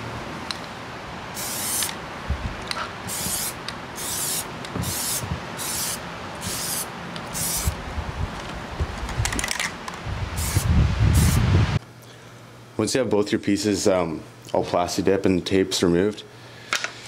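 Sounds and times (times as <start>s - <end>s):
aerosol can spraying: 1.4s - 2.0s, 3.1s - 7.8s, 10.4s - 11.5s.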